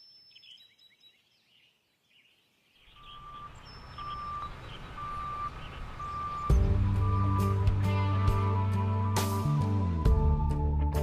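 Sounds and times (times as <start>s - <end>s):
birds chirping: 0.0s - 9.5s
backup alarm beeping: 3.0s - 7.7s.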